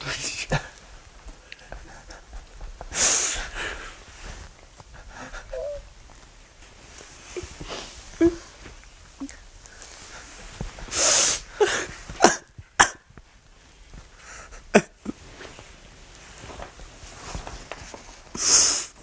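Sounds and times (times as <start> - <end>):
man sniffing: 18.4 - 19.0.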